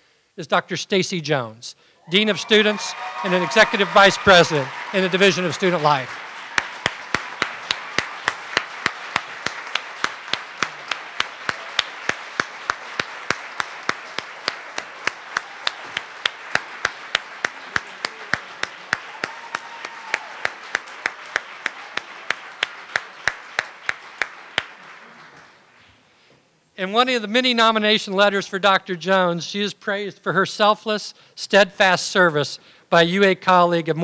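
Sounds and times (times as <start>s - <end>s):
audience applause: 2.1s - 25.7s
hands clapping close to microphone: 2.4s - 25.7s.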